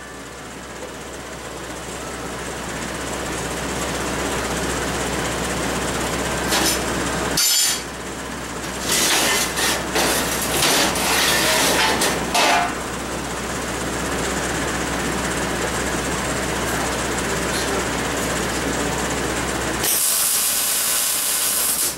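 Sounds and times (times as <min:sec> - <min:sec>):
steel clanking on table: 0:07.4 - 0:07.9
steel scraping on table: 0:08.8 - 0:12.6.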